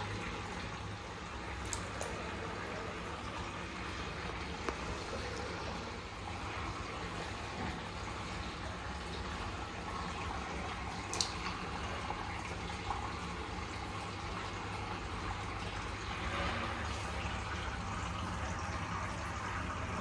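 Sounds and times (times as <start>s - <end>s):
water trickling into tank: 0.0s - 20.0s
brief sharp splashes: 11.0s - 11.6s.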